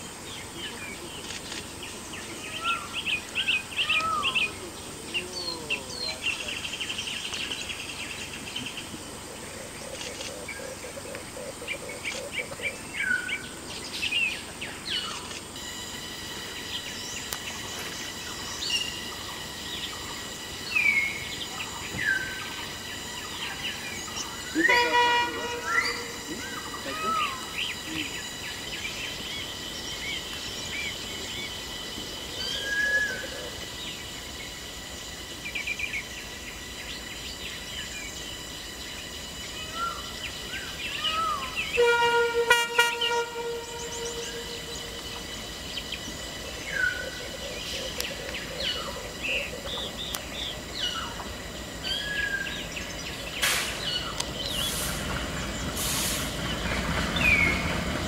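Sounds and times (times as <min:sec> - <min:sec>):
birds calling: 0:00.0 - 0:58.0
train rumble: 0:00.0 - 0:58.0
locomotive horn: 0:24.5 - 0:26.6, 0:41.6 - 0:45.3.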